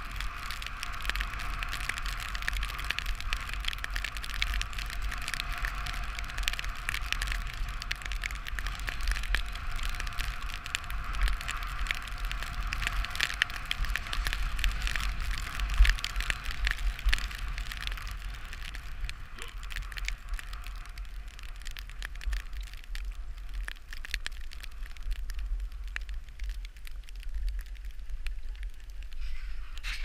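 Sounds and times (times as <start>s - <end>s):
skis scraping over snow: 0.0s - 3.9s.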